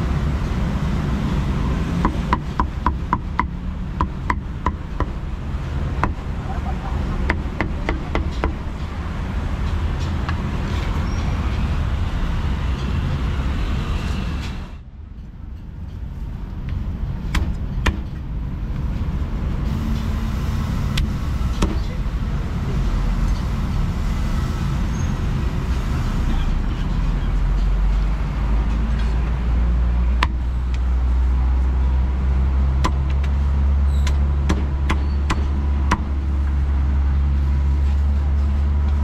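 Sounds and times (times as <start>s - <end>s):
road traffic rumble: 0.0s - 39.0s
cleaver chopping on wooden block: 30.2s - 30.4s, 32.8s - 33.3s, 34.1s - 36.1s.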